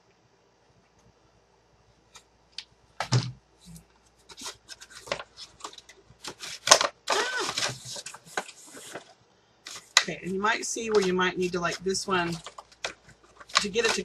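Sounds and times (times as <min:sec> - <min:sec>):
paper rustling and crinkling: 0:03.0 - 0:14.0.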